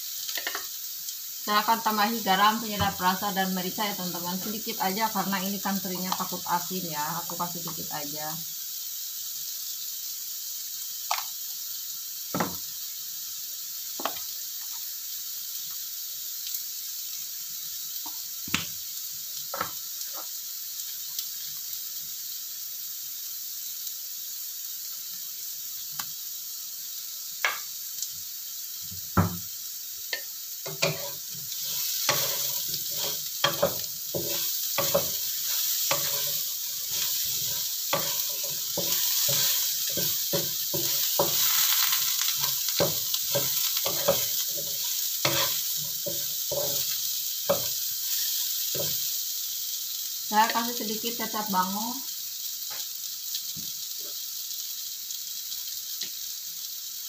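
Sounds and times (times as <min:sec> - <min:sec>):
food sizzling in a wok: 0:00.0 - 0:57.0
wooden spatula scraping a pan: 0:30.7 - 0:46.9.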